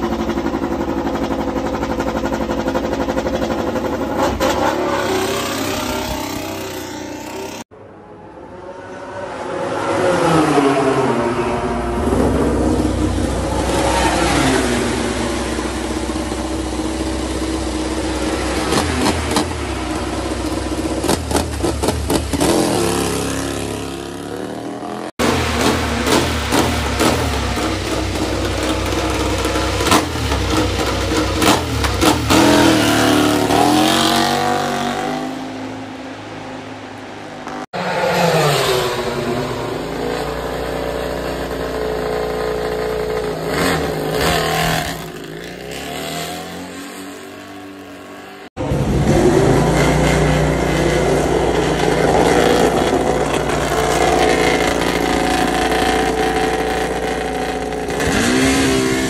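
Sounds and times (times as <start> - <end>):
race bike engines revving: 0.0 - 7.7, 8.5 - 59.0.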